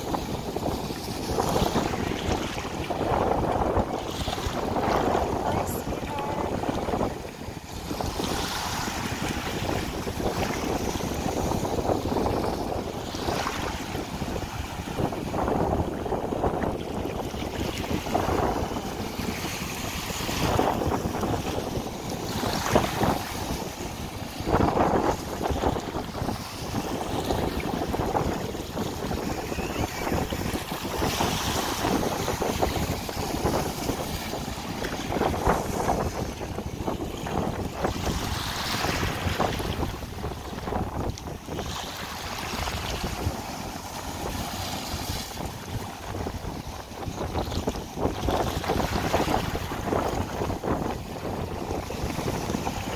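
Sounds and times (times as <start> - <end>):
small waves washing on sand: 0.0 - 52.9
wind buffeting microphone: 0.0 - 52.9.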